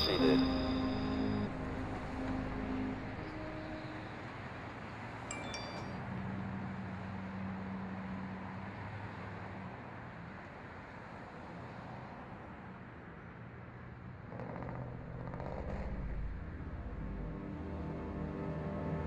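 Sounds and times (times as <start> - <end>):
high chiming pings: 0.0 - 4.1, 5.3 - 6.0
low steady hum: 0.0 - 5.8.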